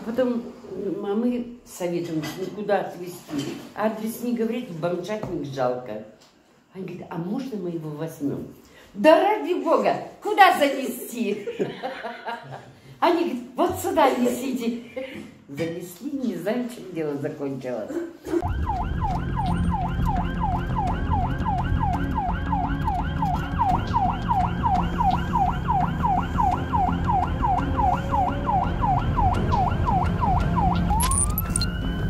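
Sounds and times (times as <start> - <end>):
ambulance siren: 18.4 - 32.0.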